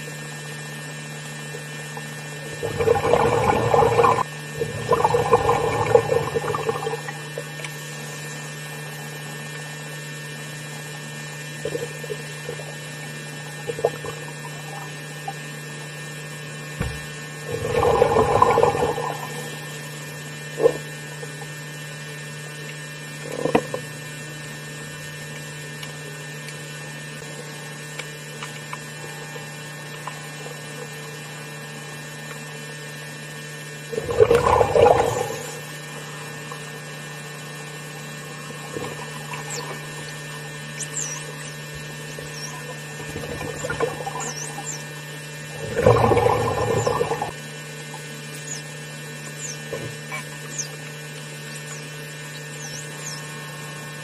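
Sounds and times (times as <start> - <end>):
low underwater hum: 0.0 - 54.0
dolphin chirps: 39.4 - 40.0, 40.6 - 42.8, 44.1 - 45.0, 49.3 - 50.8, 51.6 - 53.4.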